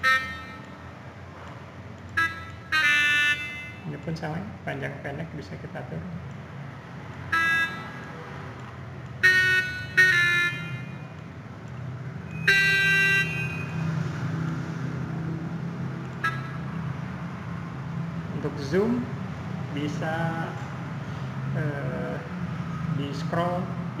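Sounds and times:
synthesized saxophone notes: 0.0 - 0.9, 2.1 - 3.9, 7.3 - 8.2, 9.2 - 11.2, 12.3 - 13.8, 16.2 - 16.8.

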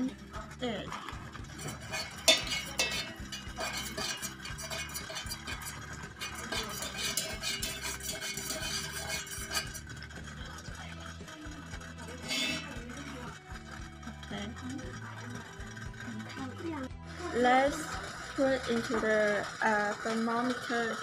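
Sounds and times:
stick stirring in metal pitcher: 0.0 - 21.0.

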